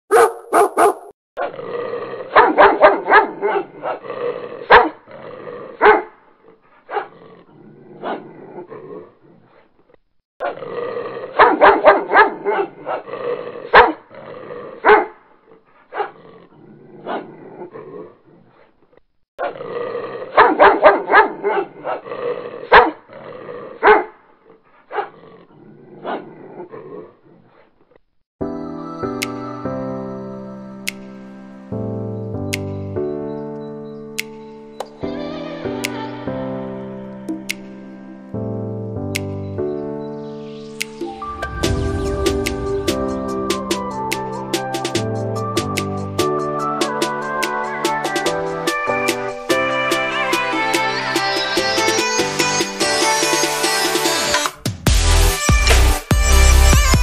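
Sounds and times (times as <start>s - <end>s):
dog barking: 0.1s - 1.6s, 2.3s - 4.0s, 4.6s - 5.0s, 5.8s - 6.2s, 6.9s - 7.2s, 11.3s - 14.0s, 14.8s - 15.2s, 15.9s - 16.2s, 17.0s - 17.3s, 20.3s - 23.0s, 23.8s - 24.2s, 24.9s - 25.2s.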